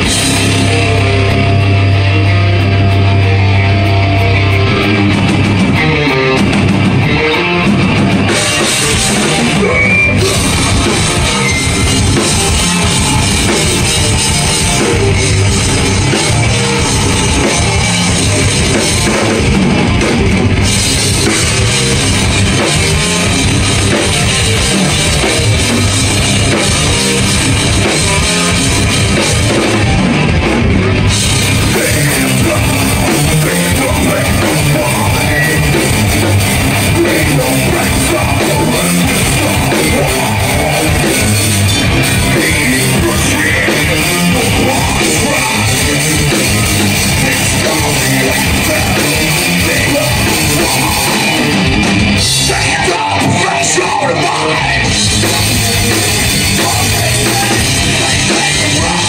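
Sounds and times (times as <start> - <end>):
bass guitar: 0.0 - 59.0
distorted electric guitar: 0.0 - 59.0
drum kit: 0.0 - 59.0
vocalist singing into microphone: 8.6 - 19.6, 31.5 - 59.0.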